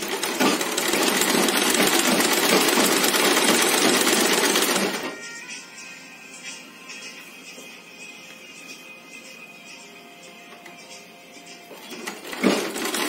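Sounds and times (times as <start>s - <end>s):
sewing machine stitching: 0.0s - 5.1s, 11.8s - 13.0s.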